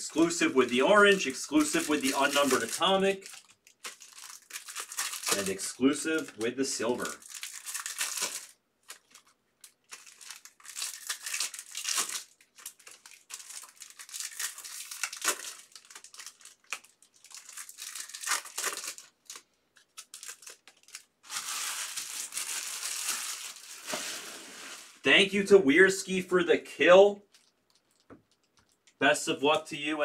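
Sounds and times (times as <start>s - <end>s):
foil wrappers crinkling and tearing: 0.1s - 25.0s.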